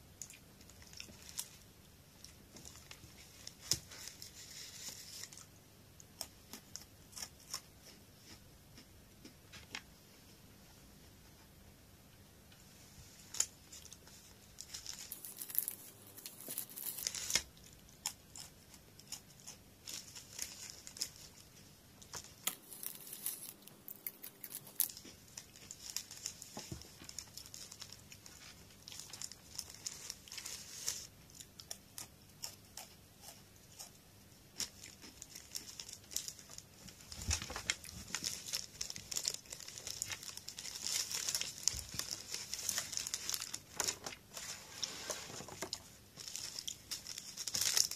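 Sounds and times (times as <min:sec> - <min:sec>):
plastic wrappers crinkling and tearing: 0:00.8 - 0:01.6, 0:02.2 - 0:05.5, 0:13.3 - 0:33.4, 0:34.6 - 0:47.9.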